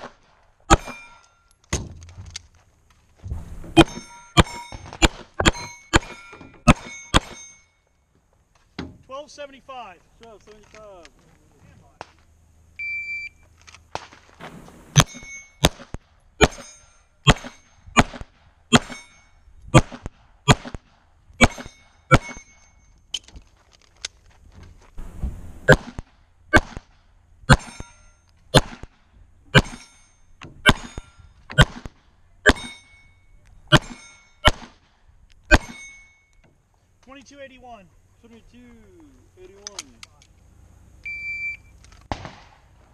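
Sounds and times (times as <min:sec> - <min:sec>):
pistol gunshots: 0:00.0 - 0:01.1, 0:03.7 - 0:07.5, 0:14.0 - 0:19.1, 0:19.7 - 0:22.4, 0:25.0 - 0:27.9, 0:28.5 - 0:29.9, 0:30.6 - 0:32.8, 0:33.7 - 0:34.8, 0:35.5 - 0:35.8, 0:42.1 - 0:42.7
steel plates ringing: 0:00.7 - 0:01.6, 0:03.4 - 0:08.0, 0:14.6 - 0:15.8, 0:16.4 - 0:17.9, 0:18.8 - 0:19.5, 0:21.4 - 0:23.1, 0:27.5 - 0:28.3, 0:29.5 - 0:31.4, 0:32.5 - 0:34.5, 0:35.5 - 0:36.4
shot timer beep: 0:41.0 - 0:41.7.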